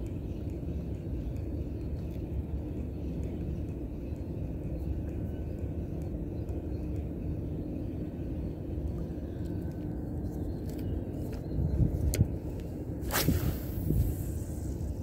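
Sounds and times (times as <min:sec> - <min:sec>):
low outdoor rumble: 0:00.0 - 0:15.0.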